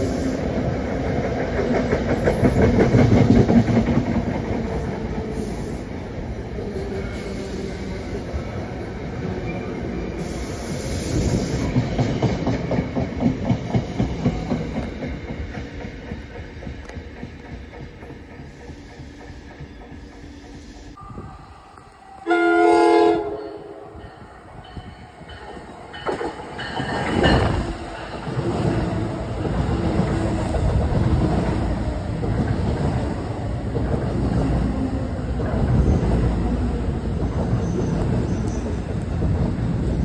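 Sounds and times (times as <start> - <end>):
train wheels passing: 0.0 - 40.0
train horn blast: 22.2 - 24.0.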